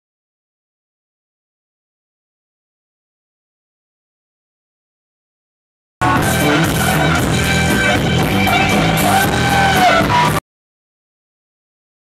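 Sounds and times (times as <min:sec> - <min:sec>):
loud funk music: 0:06.0 - 0:10.4.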